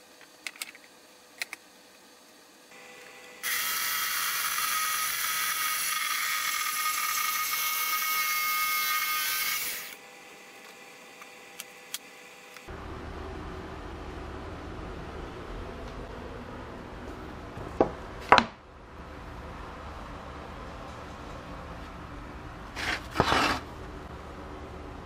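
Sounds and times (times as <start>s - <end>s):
power tool high whine: 2.7s - 12.7s.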